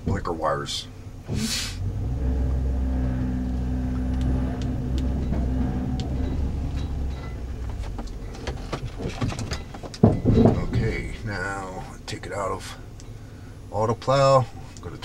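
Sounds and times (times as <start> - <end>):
hydraulic pump motor running: 1.2 - 11.3.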